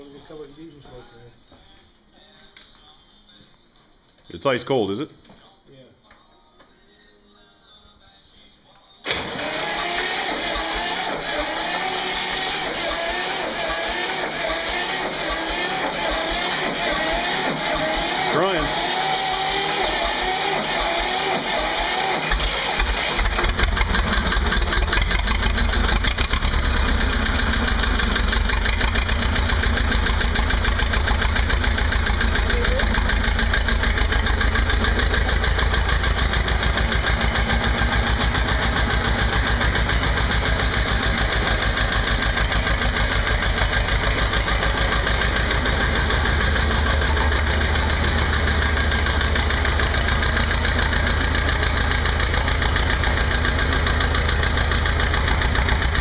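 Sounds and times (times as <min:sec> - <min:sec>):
tractor diesel engine idling: 0:22.3 - 0:56.0.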